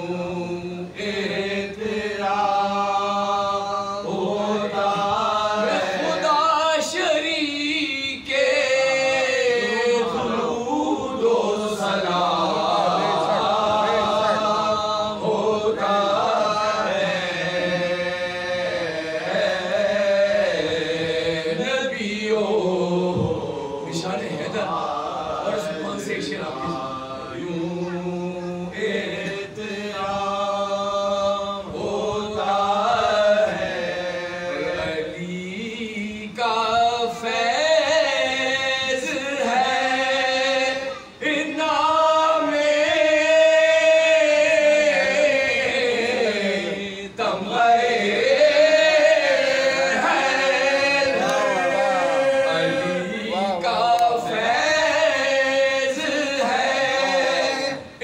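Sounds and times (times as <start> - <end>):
men chanting a low drone: 0.0 - 58.0.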